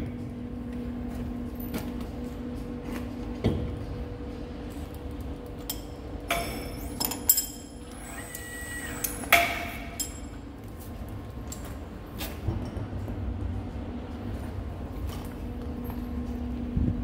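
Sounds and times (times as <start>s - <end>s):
low workshop hum: 0.0s - 17.0s.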